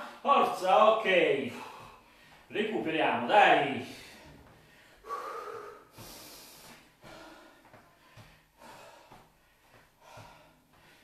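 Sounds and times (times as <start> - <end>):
soft footfalls: 0.5 - 5.0, 5.9 - 11.0
man breathing hard: 1.4 - 2.5, 3.9 - 11.0.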